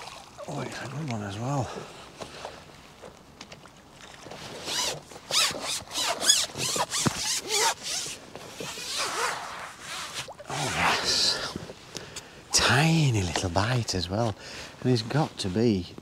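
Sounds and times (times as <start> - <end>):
fishing reel zip-like rasps: 4.6 - 10.8.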